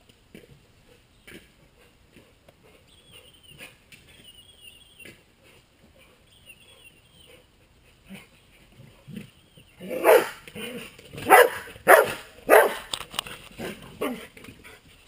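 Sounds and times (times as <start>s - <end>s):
dog barking: 9.9s - 10.4s, 11.3s - 12.9s.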